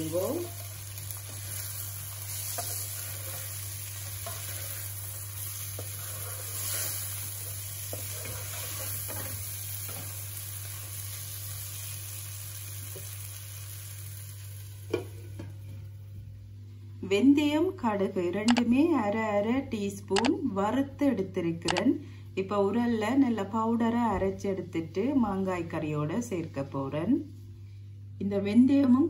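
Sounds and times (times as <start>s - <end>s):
mango pieces sizzling in oil: 0.0s - 15.7s
steady low hum: 0.0s - 29.0s
spatula scraping and knocking pan: 2.3s - 4.9s, 7.8s - 10.1s.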